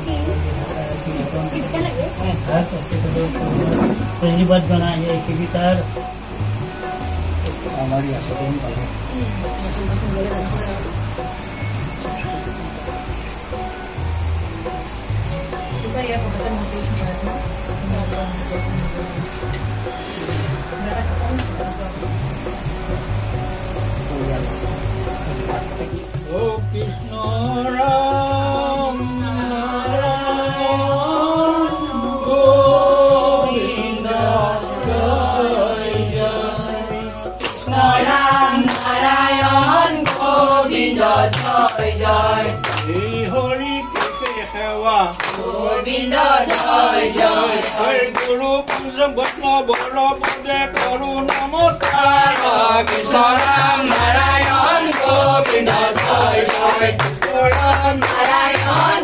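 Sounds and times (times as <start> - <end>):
group singing devotional song: 0.0 - 11.3, 25.3 - 43.8, 44.4 - 59.0
rhythmic hand-clapping: 16.6 - 28.1, 34.0 - 59.0.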